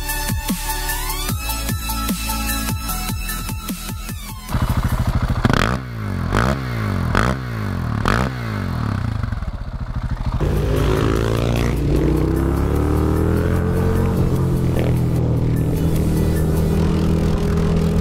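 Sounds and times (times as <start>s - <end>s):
motorcycle engine running: 4.4s - 18.0s
motorcycle engine revving: 4.5s - 18.0s.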